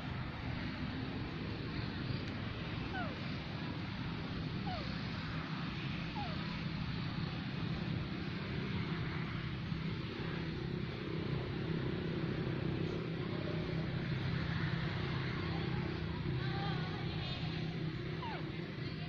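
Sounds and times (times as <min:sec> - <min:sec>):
outdoor noise: 0:00.0 - 0:19.0
faint short chirping calls: 0:02.1 - 0:03.4, 0:04.5 - 0:05.1, 0:06.1 - 0:06.7, 0:18.0 - 0:18.6.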